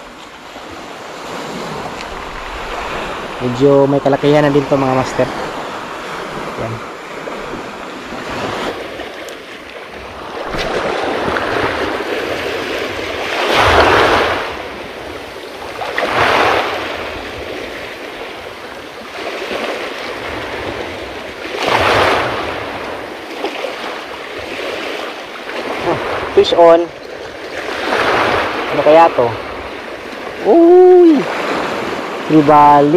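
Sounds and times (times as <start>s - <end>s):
surf surges: 0.0s - 32.9s
waves on pebbly shore: 0.0s - 32.9s.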